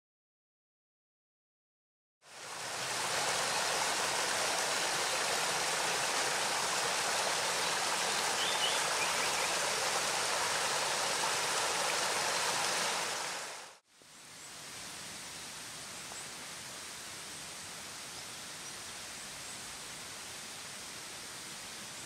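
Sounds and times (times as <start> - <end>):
waterfall rushing over rocks: 2.3 - 13.8
background hiss: 2.3 - 22.0.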